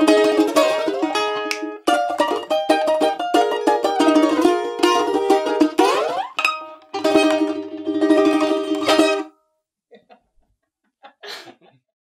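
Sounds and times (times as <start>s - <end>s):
balalaikas strumming folk tune: 0.0s - 9.4s.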